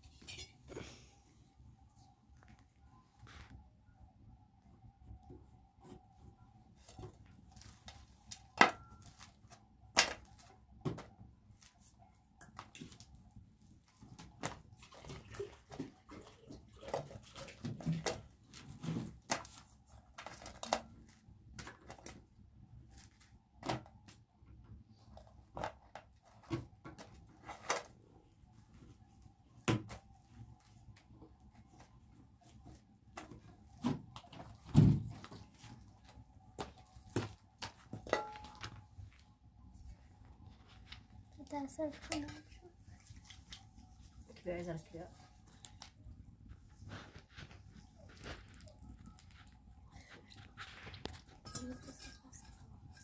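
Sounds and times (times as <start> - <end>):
metal dishes clinking: 0.2 - 0.6, 38.1 - 38.7, 51.4 - 53.0.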